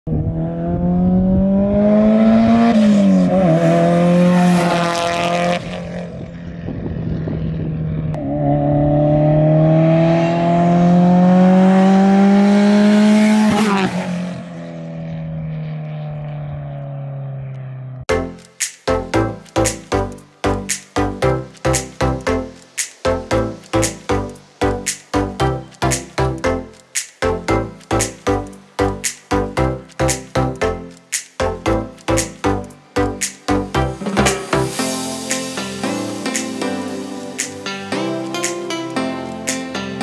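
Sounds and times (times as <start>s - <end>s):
car engine accelerating hard: 0.1s - 18.1s.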